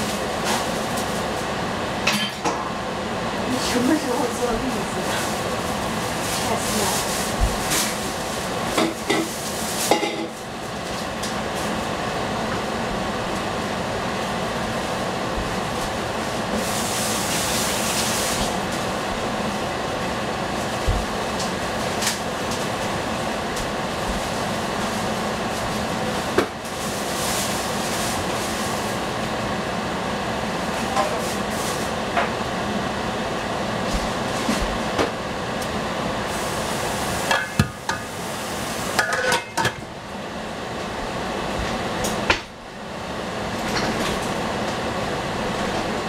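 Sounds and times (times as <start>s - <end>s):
vegetables sizzling in a pan: 36.2s - 39.6s.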